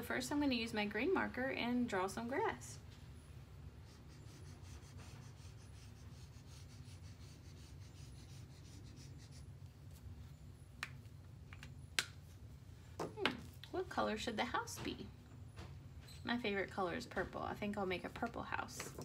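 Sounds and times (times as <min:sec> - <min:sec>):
marker scratching on paper: 0:03.8 - 0:10.0.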